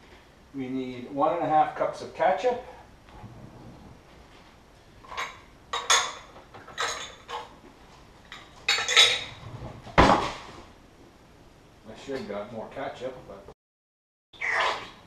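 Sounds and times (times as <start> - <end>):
kitchenware clattering in cabinet: 5.1 - 7.5, 8.3 - 9.4
thump: 9.9 - 10.6.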